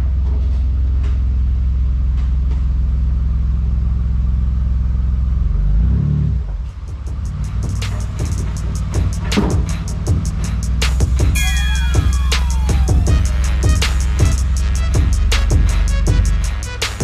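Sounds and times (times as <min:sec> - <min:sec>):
car engine on dyno: 0:00.0 - 0:11.0
loud deep exhaust note: 0:05.3 - 0:17.0
music with a beat: 0:06.9 - 0:17.0.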